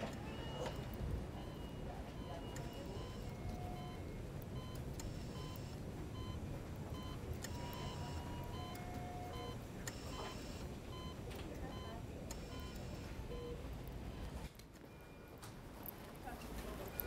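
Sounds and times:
low room rumble: 0:00.0 - 0:17.0
electronic beeps and alert tones: 0:00.3 - 0:06.4.

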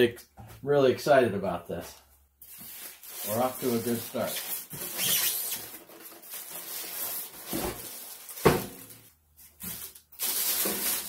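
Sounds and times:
plastic bag rustling and crinkling: 0:02.4 - 0:11.0.

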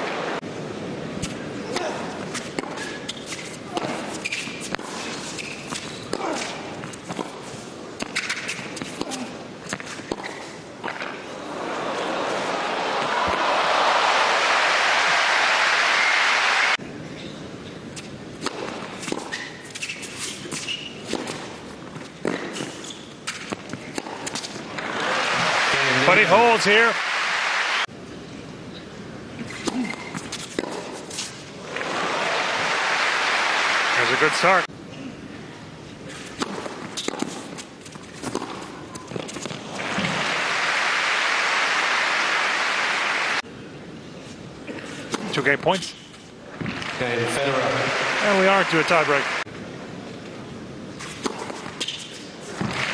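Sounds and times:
racket hitting tennis ball: 0:01.2 - 0:11.2, 0:18.4 - 0:25.5, 0:29.5 - 0:31.9, 0:36.1 - 0:40.4, 0:51.0 - 0:52.9
tennis ball bouncing: 0:02.2 - 0:11.2, 0:18.0 - 0:25.5, 0:29.5 - 0:31.9, 0:36.1 - 0:40.2, 0:51.0 - 0:52.9
shoes squeaking on court: 0:02.3 - 0:11.2, 0:17.1 - 0:24.6, 0:28.7 - 0:31.5, 0:36.1 - 0:40.2, 0:50.9 - 0:52.9
crowd applause: 0:11.4 - 0:16.8, 0:24.8 - 0:27.9, 0:31.6 - 0:34.7, 0:39.8 - 0:43.4, 0:46.8 - 0:49.5.

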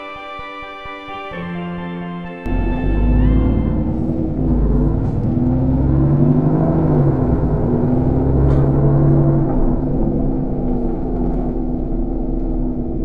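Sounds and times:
bus engine rumbling: 0:02.5 - 0:13.0.

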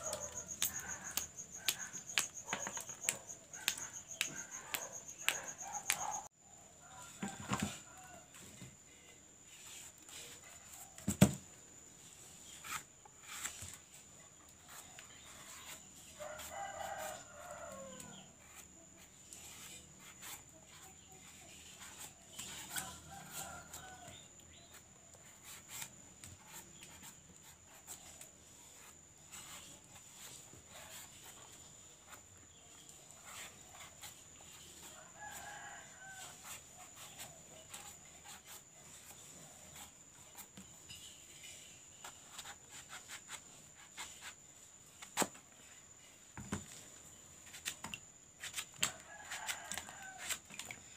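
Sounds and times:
rooster crowing faintly: 0:00.0 - 0:11.1, 0:14.7 - 0:18.7, 0:19.4 - 0:24.8, 0:32.8 - 0:40.7, 0:48.7 - 0:50.9.

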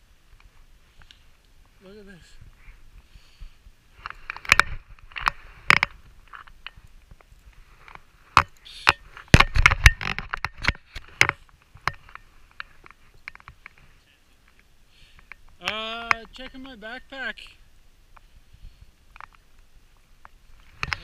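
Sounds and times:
clicks and scrapes of handling: 0:20.2 - 0:21.0.

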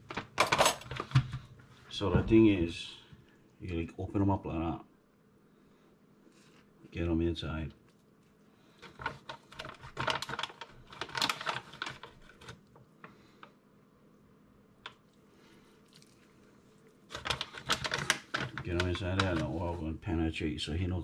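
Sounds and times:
hands rustling flour: 0:15.0 - 0:20.0.

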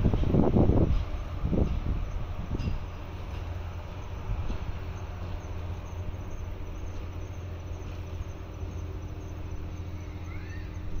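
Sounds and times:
electric locomotive humming: 0:00.0 - 0:11.0
faint chirps: 0:04.8 - 0:11.0.

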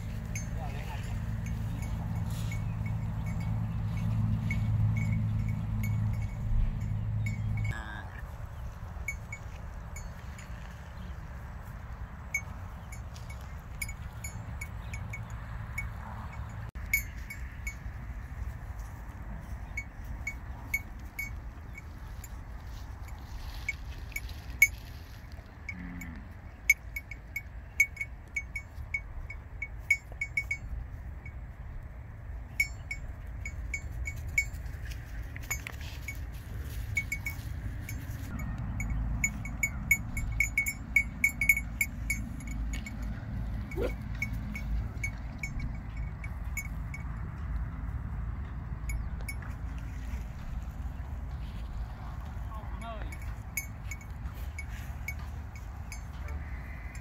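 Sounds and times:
small metal bell tinkling: 0:00.0 - 0:08.0, 0:08.9 - 0:11.2, 0:12.3 - 0:25.0, 0:25.7 - 0:31.5, 0:32.4 - 0:47.7, 0:48.8 - 0:49.6, 0:52.6 - 0:57.0
low steady rumble: 0:00.0 - 0:57.0.

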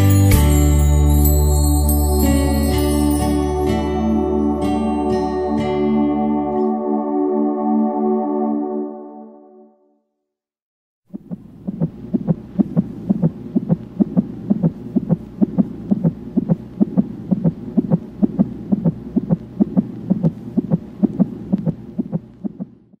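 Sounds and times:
steady low hum: 0:11.1 - 0:23.0
whooshing fetal heartbeat: 0:11.1 - 0:23.0.

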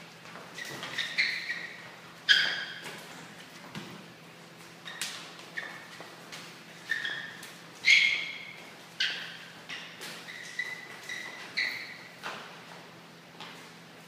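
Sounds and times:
shoes squeaking on floor: 0:00.0 - 0:03.8, 0:04.6 - 0:13.7.

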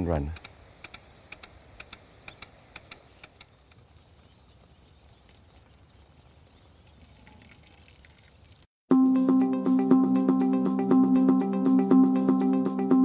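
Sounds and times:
sprinkler water hiss and splash: 0:00.0 - 0:08.7.

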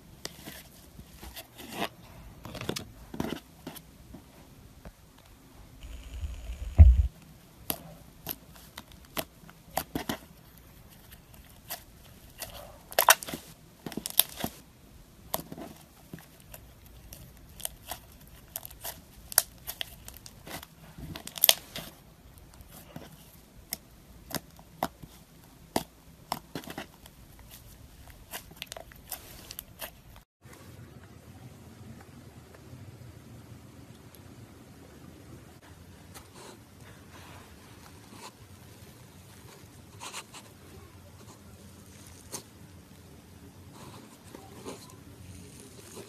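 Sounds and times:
low thud: 0:05.9 - 0:07.1.

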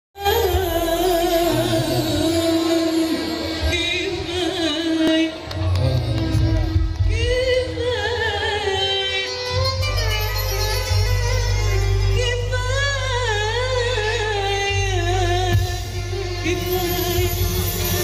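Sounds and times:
person singing with vibrato: 0:00.2 - 0:10.2, 0:11.8 - 0:18.0
violins playing: 0:08.8 - 0:18.0
steady bass line: 0:09.6 - 0:18.0.

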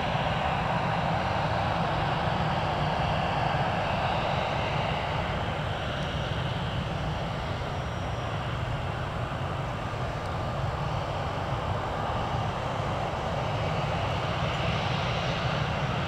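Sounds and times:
jet engines rumbling: 0:00.0 - 0:16.0.

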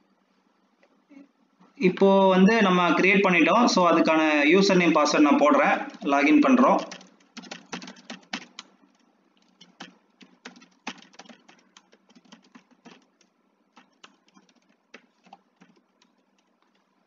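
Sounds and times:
computer keyboard typing: 0:05.8 - 0:17.0.

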